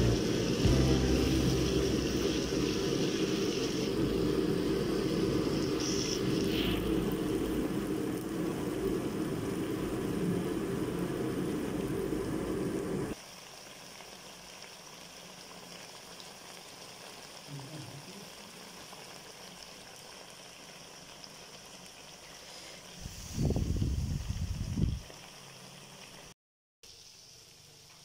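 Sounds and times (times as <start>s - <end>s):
low rumble: 0.0s - 13.2s
curry simmering hiss: 0.0s - 28.0s.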